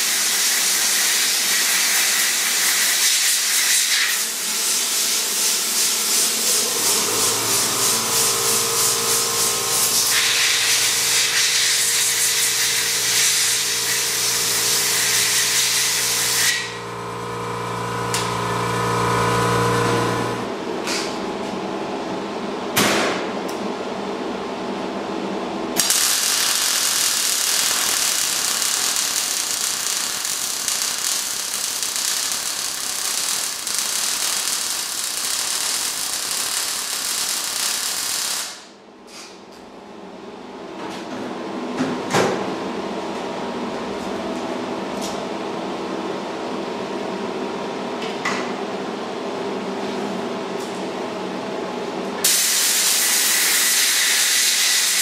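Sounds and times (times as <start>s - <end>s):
welder arc crackle: 0.0s - 20.5s, 25.8s - 38.7s, 52.2s - 55.0s
tack-weld bursts: 25.8s - 38.6s.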